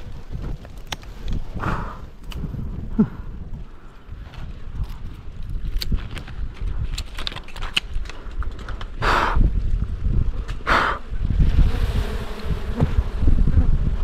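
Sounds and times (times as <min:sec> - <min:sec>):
microphone handling noise: 0:11.2 - 0:14.0.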